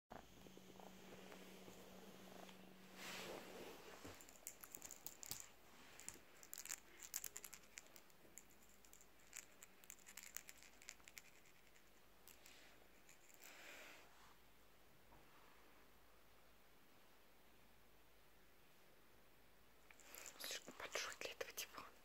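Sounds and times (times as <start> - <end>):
kitten purring: 0.1 - 12.4.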